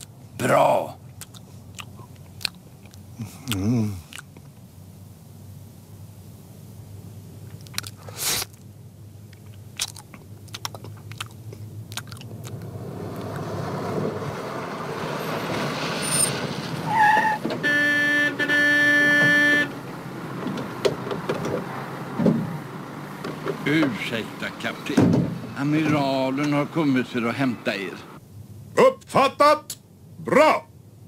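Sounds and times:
jeep engine: 9.4s - 28.2s
vehicle horn blasts: 16.9s - 19.9s.

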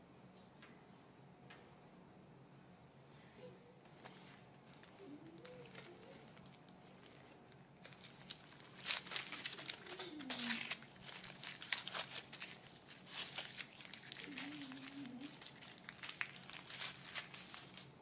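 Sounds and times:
foil wrapper crinkling: 4.1s - 18.0s.

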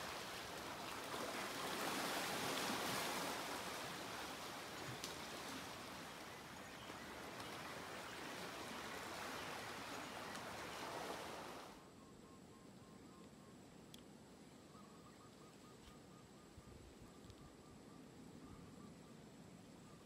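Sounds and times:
small waves washing over stones: 0.0s - 6.3s.

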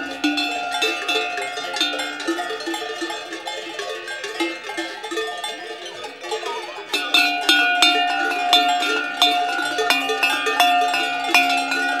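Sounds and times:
cowbells clanking: 0.0s - 12.0s.

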